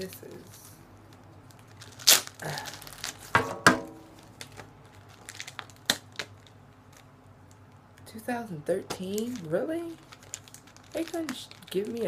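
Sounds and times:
packaging crinkles and clicks: 1.1 - 3.3, 4.1 - 8.1, 9.0 - 12.0
packaging crackling: 1.1 - 3.4, 4.0 - 8.1, 9.0 - 12.0.

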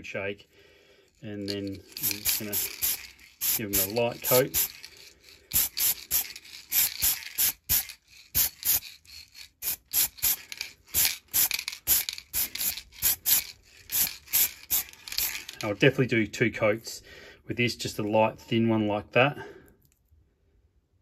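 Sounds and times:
spray paint can hissing: 1.5 - 15.6.

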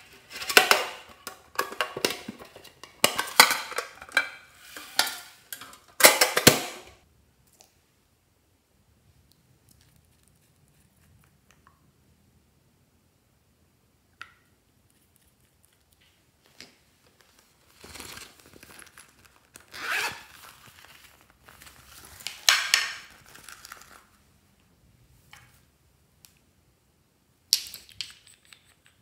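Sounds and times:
pouch zipper unzipping: 19.7 - 20.3.

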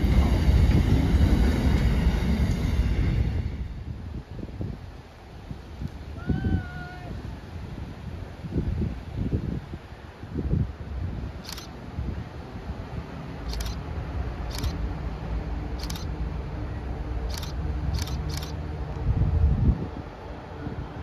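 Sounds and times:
diesel train engine rumble: 0.0 - 6.4, 10.0 - 21.0
camera shutter clicks: 11.4 - 11.7, 13.5 - 13.8, 14.5 - 14.8, 15.8 - 16.1, 17.3 - 18.6.

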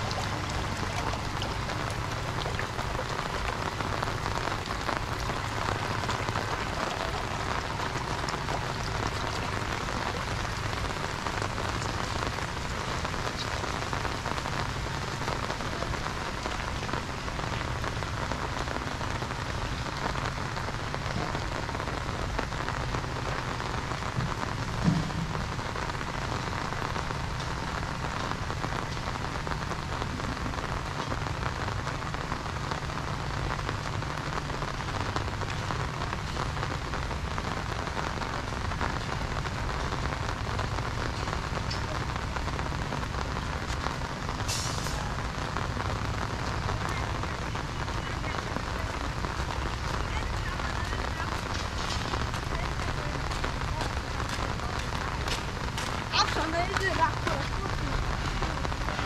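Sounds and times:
rain on an umbrella: 0.0 - 59.0
brief low thump: 24.2 - 25.4.

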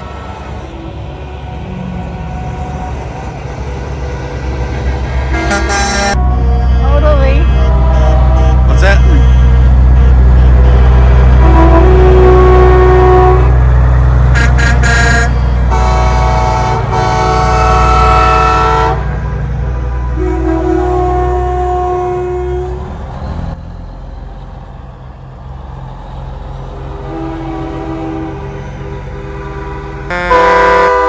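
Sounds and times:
diesel engines rumbling: 0.0 - 31.0
truck air horns blowing: 5.3 - 22.9, 26.9 - 31.0.

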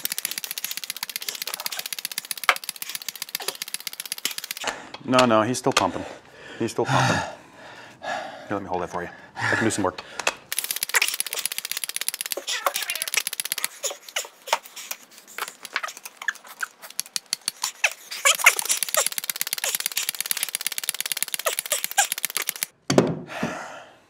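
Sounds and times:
grease gun clicking: 0.0 - 5.9, 10.0 - 22.8
person breathing out: 23.3 - 24.0.

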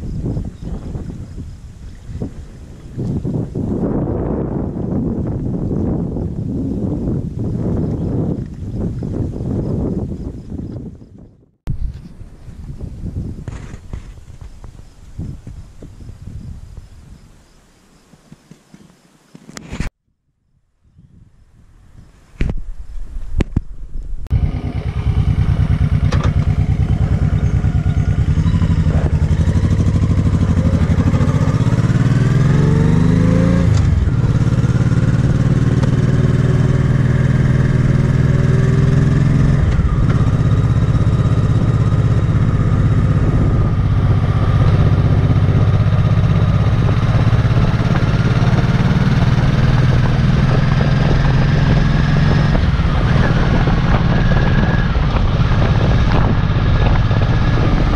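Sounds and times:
motorcycle engine revving: 24.3 - 57.9.

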